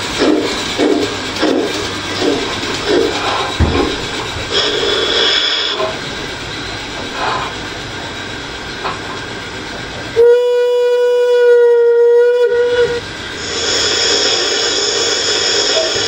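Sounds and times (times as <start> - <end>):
model locomotive whistle blast: 10.2 - 16.0.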